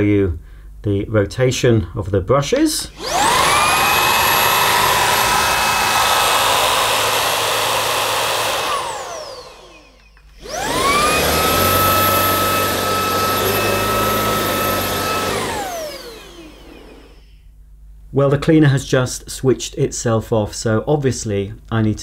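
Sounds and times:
cordless vacuum whining: 0:02.9 - 0:17.4.

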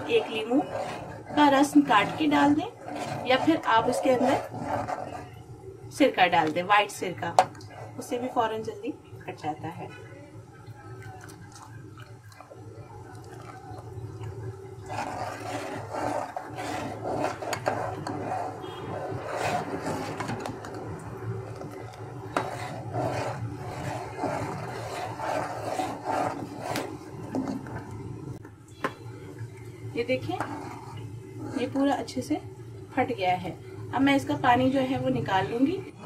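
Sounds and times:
ladle scraping a metal pot: 0:00.0 - 0:05.4, 0:14.8 - 0:27.9, 0:30.2 - 0:32.0
steady low hum: 0:00.0 - 0:36.0.

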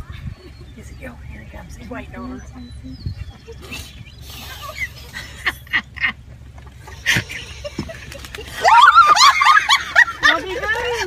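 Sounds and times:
girl laughing loudly: 0:06.9 - 0:10.6.

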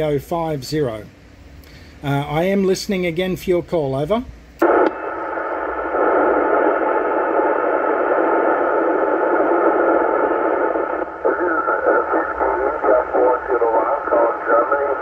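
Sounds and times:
radio receiver hiss: 0:04.6 - 0:15.0
faint garbled radio voice: 0:10.4 - 0:15.0.

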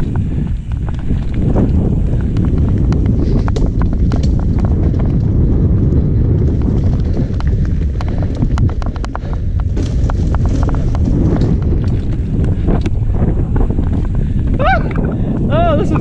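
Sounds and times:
bike rattling over bumps: 0:00.0 - 0:16.0
tyres on dirt: 0:00.0 - 0:16.0
wind rumble on microphone: 0:00.0 - 0:16.0.

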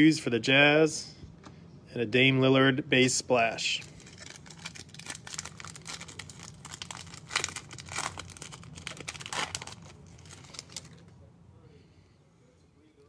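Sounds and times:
foil wrapper crinkling: 0:03.8 - 0:11.1
foil wrapper ripping: 0:03.8 - 0:11.1.

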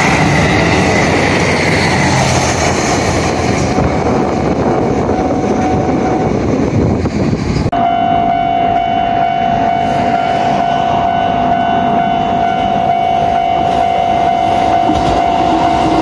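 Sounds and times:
level crossing alarm tone: 0:07.7 - 0:16.0.

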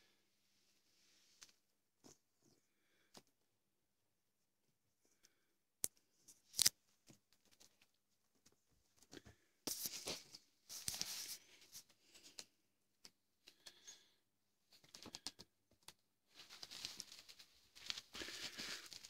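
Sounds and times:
cats scuffling and clicks: 0:07.0 - 0:14.0, 0:14.7 - 0:19.0
crinkling of bags: 0:16.3 - 0:19.0.

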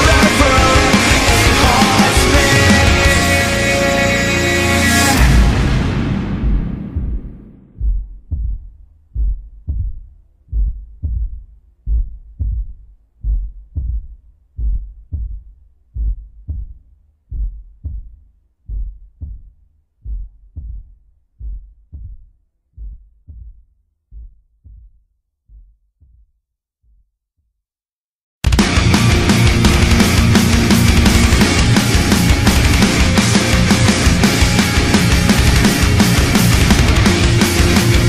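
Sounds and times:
heartbeat thumps: 0:06.2 - 0:27.1.

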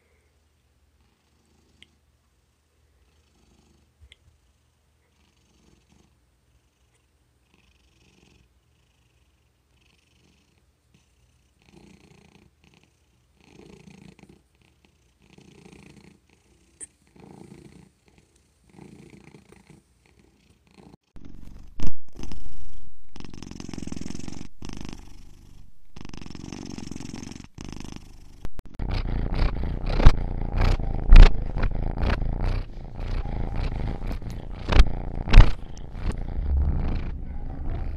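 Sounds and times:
cat purring softly: 0:02.9 - 0:37.9
cat purring loudly: 0:17.1 - 0:37.9
microphone bump: 0:31.0 - 0:31.7, 0:33.7 - 0:37.9.

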